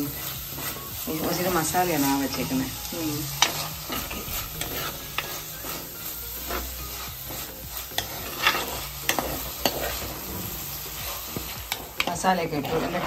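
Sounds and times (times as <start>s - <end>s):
vegetables sizzling in oil: 0.0s - 13.0s
metal spoon scraping pot: 7.9s - 13.0s.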